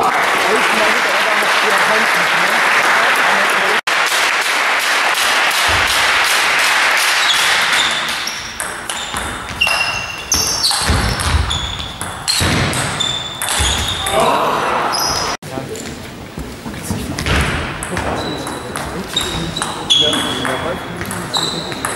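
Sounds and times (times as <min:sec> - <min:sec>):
applause: 0:00.0 - 0:08.2
shoes squeaking on floor: 0:07.1 - 0:14.1, 0:18.0 - 0:21.9.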